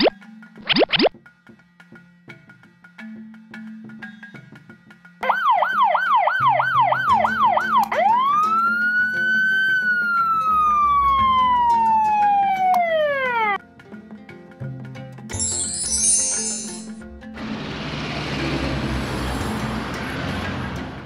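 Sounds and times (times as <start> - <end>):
fire truck siren: 5.2 - 13.6
soft children's music: 6.6 - 17.4.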